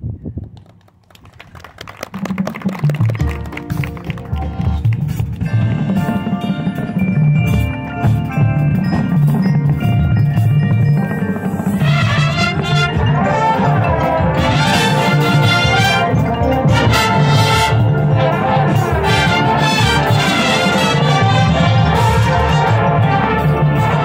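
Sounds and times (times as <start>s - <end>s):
mallet keyboards ringing: 5.4s - 24.0s
brass hornline playing loud: 11.8s - 24.0s.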